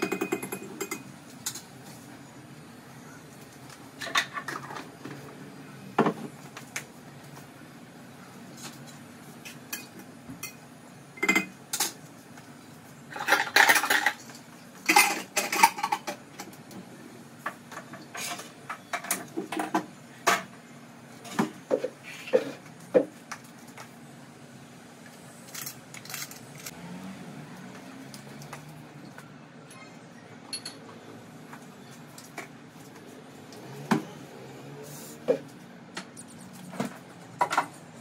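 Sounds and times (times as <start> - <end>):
pots and pans clattering: 13.1 - 16.5.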